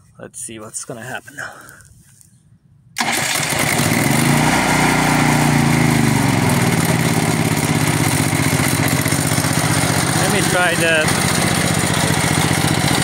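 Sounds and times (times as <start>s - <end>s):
generator engine starting and running: 3.0s - 13.0s.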